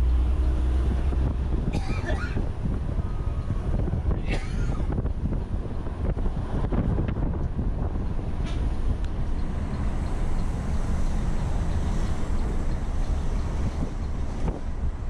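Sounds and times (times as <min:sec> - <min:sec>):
coach road and engine noise: 0:00.0 - 0:15.0.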